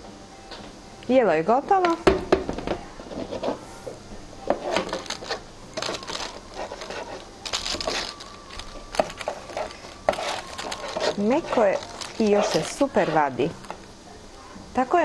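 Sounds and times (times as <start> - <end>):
cutlery scraping a metal tray: 4.5 - 13.6
baking paper crinkling: 4.5 - 13.8.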